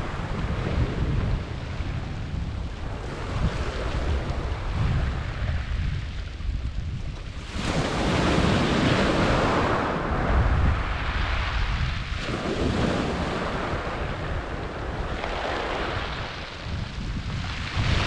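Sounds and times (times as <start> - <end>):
waves crashing on shingle beach: 0.0 - 6.5, 7.3 - 18.0
wind rumbling on microphone: 0.0 - 18.0.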